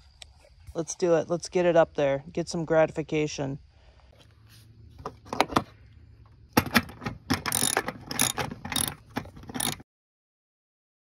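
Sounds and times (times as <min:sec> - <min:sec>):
ratchet wrench clicking: 0:07.3 - 0:09.8.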